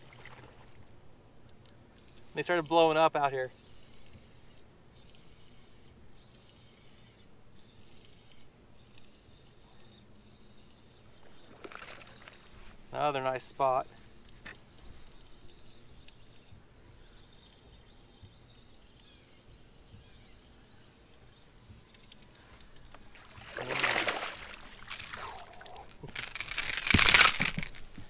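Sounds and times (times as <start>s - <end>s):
fish splashing in water: 23.2s - 27.7s.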